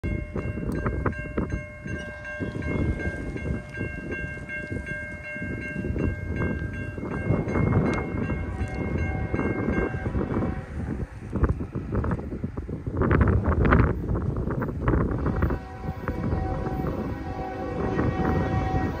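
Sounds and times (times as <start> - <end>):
railroad crossing bell ringing: 0.0 - 11.2, 15.2 - 19.0
wind buffeting the microphone: 0.0 - 19.0.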